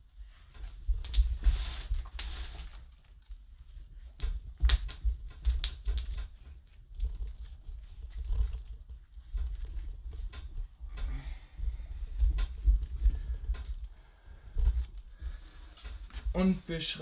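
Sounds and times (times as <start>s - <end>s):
hands rustling potting soil: 0.0s - 17.0s
soil clicks and scrapes: 0.5s - 3.3s.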